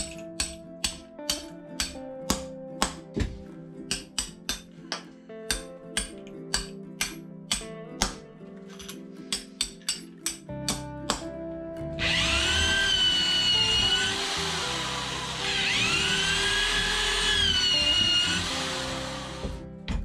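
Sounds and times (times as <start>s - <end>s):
electric drill boring through wood: 12.0s - 19.6s.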